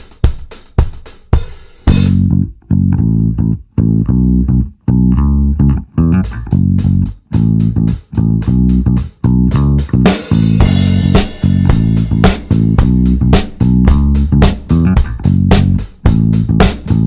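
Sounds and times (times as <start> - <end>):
crisp drum beat: 0.0 - 2.3, 8.5 - 17.0.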